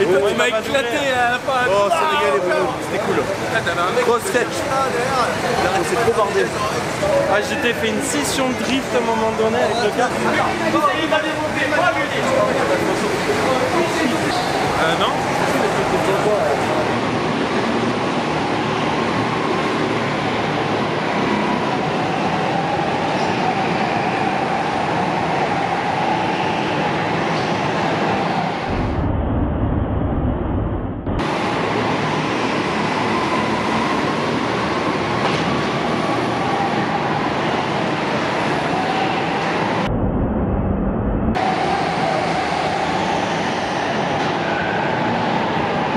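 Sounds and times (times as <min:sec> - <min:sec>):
rising and falling whine: 0:28.5 - 0:33.0, 0:38.8 - 0:43.9.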